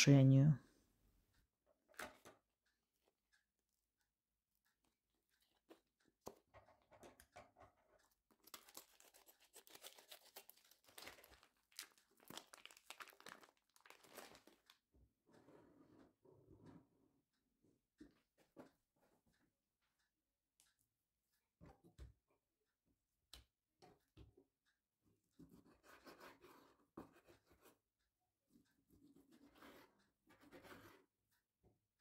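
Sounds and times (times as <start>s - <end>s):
plastic packaging crinkling and tearing: 8.4s - 14.7s.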